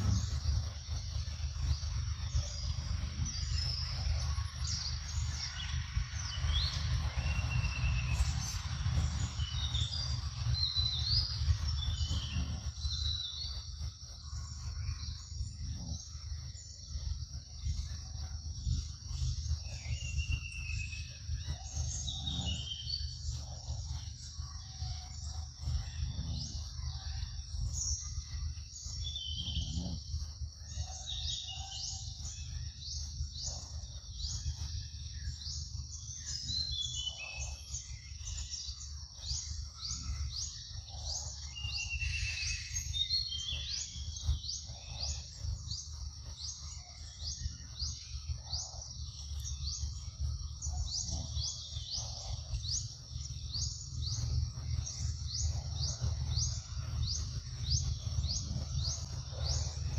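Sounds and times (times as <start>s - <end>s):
high insect hiss: 0.0s - 59.9s
low rumble: 0.0s - 59.9s.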